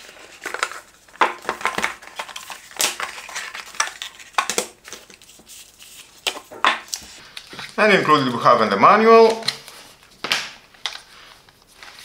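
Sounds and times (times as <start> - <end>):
packaging crinkling and rustling: 0.0 - 8.3.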